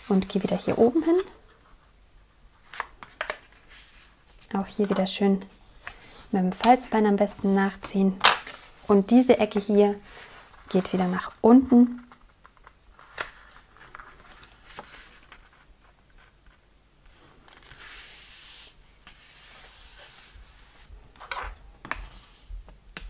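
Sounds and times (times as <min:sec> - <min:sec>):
paper crackling: 0:05.9 - 0:20.2
hands rubbing paper: 0:17.5 - 0:20.9.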